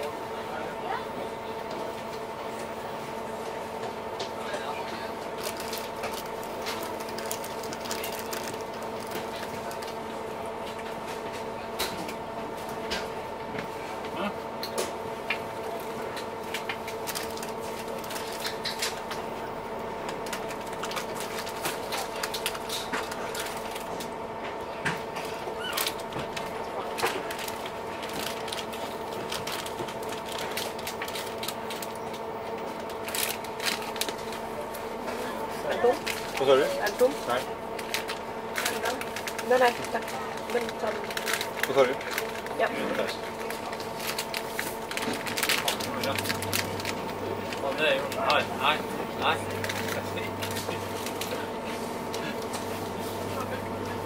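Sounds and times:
boat engines humming: 0:13.2 - 0:54.0.

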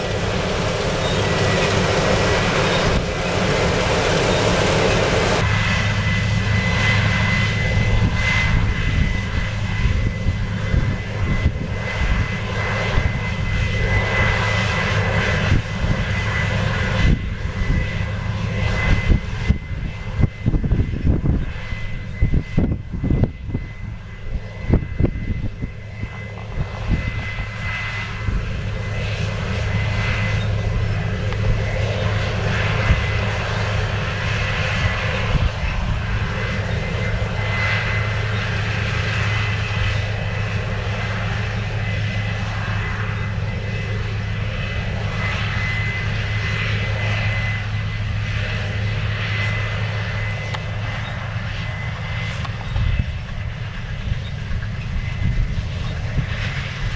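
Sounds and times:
high whine: 0:00.0 - 0:15.6
combine harvester engine drone: 0:00.0 - 0:56.9
wind rumbling on microphone: 0:00.0 - 0:56.9.

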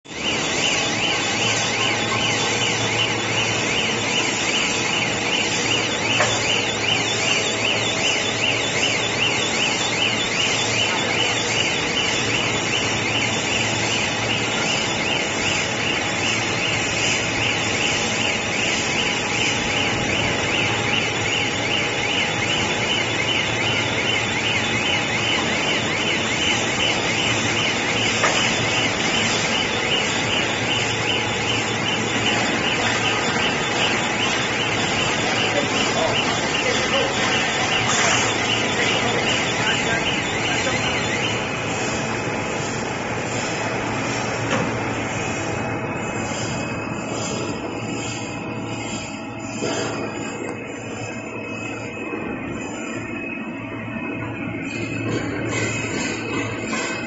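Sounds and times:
warbling electronic alarm: 0:00.0 - 0:57.0
machine winder running: 0:00.1 - 0:57.0.

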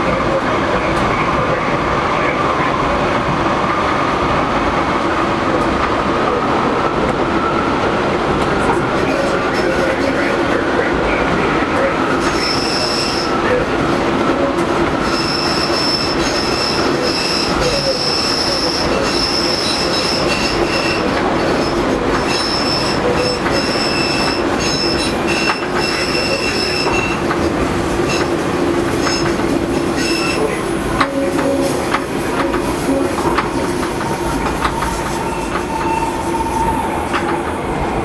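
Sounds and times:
train running rumble: 0:00.0 - 0:38.0
train wheels squealing: 0:12.2 - 0:13.4, 0:15.0 - 0:27.2, 0:30.0 - 0:30.6, 0:33.5 - 0:37.2.

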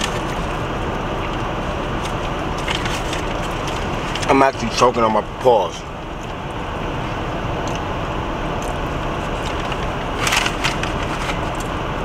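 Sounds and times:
food wrapper crackling: 0:00.0 - 0:05.0, 0:08.6 - 0:11.9
car cabin background noise: 0:00.0 - 0:12.0.

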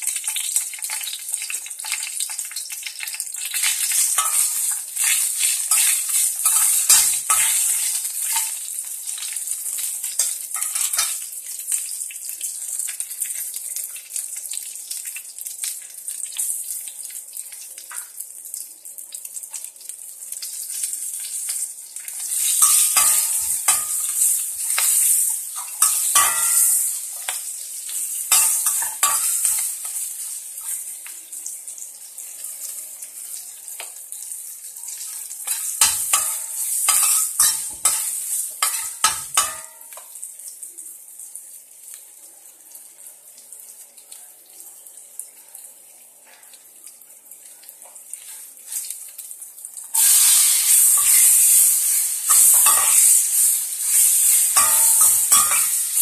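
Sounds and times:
spices sizzling in hot oil: 0:00.0 - 0:56.0
metal spoon scraping pan: 0:04.0 - 0:08.6, 0:22.2 - 0:27.0, 0:35.5 - 0:39.7, 0:50.0 - 0:55.8.

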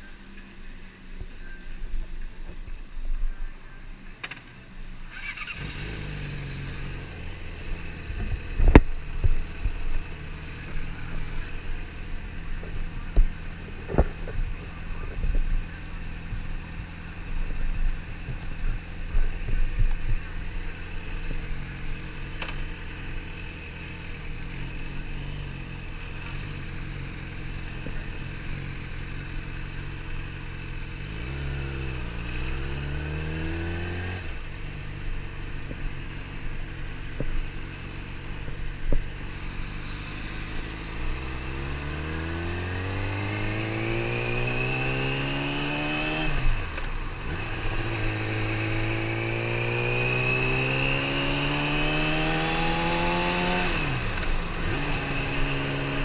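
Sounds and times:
motorcycle engine starting and idling: 0:03.4 - 0:31.1
motorcycle engine revving: 0:04.2 - 0:56.0.

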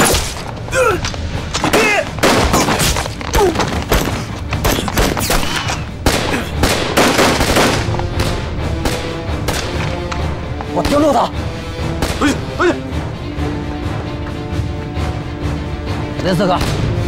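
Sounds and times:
rifle gunshots: 0:01.7 - 0:03.0, 0:06.0 - 0:09.9.

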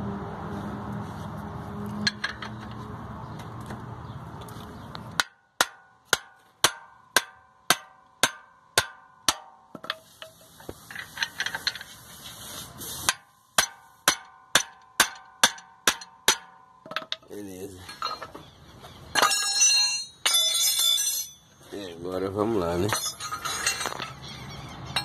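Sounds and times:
hammer striking metal: 0:05.2 - 0:10.0, 0:13.1 - 0:17.2
hiss: 0:12.1 - 0:13.1.

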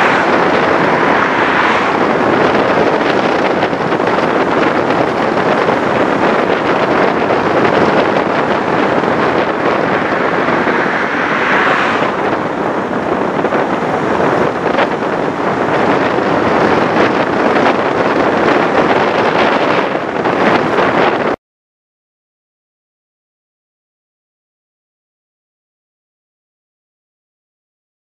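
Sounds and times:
vehicle road noise: 0:00.0 - 0:21.4
wind buffeting microphone: 0:00.0 - 0:21.4.

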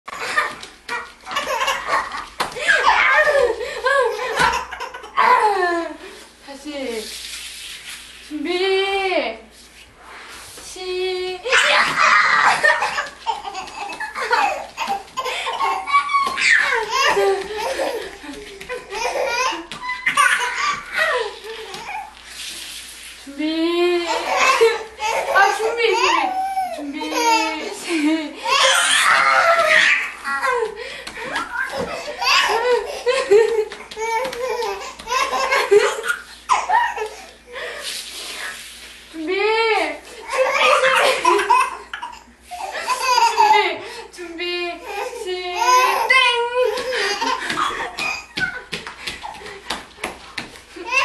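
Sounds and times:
baby laughing: 0:00.2 - 0:05.5, 0:11.5 - 0:22.1, 0:24.1 - 0:37.4, 0:40.2 - 0:43.7, 0:44.8 - 0:49.5, 0:50.8 - 0:51.0.

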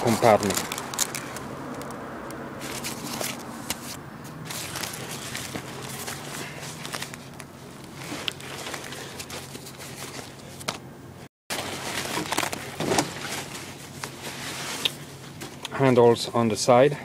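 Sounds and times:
backpack fabric rustling: 0:02.6 - 0:10.6.

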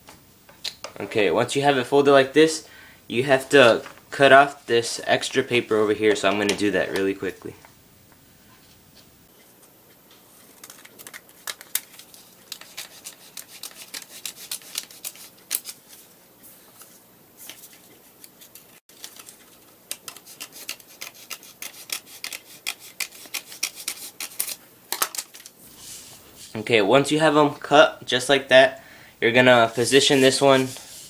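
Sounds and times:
scissors snipping paper: 0:12.5 - 0:15.8, 0:19.9 - 0:24.6.

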